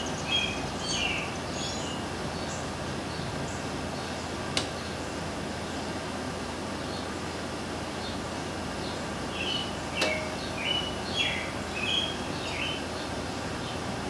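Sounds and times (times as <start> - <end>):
steady background hiss: 0.0 - 14.0
short high bird chirps: 9.4 - 12.8
sharp click: 10.0 - 10.4.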